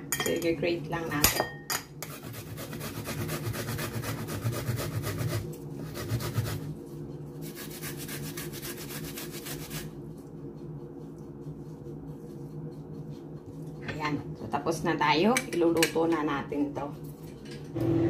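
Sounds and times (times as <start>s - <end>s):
ginger rasping on metal grater: 2.0s - 6.7s, 7.4s - 9.9s.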